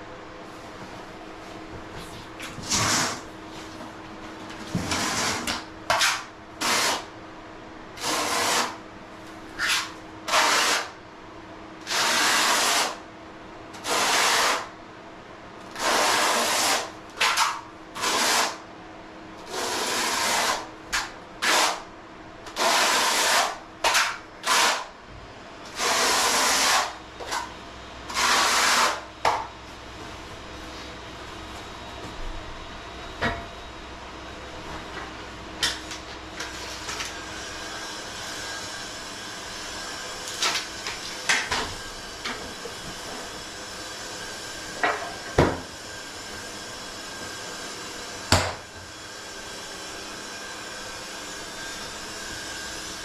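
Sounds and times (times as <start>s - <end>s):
trowel scraping mortar: 2.6s - 3.3s, 4.9s - 7.0s, 8.0s - 8.8s, 9.6s - 10.9s, 11.9s - 13.0s, 13.9s - 14.6s, 15.8s - 18.6s, 19.5s - 20.6s, 21.4s - 21.8s, 22.6s - 24.9s, 25.8s - 27.5s, 28.1s - 29.1s.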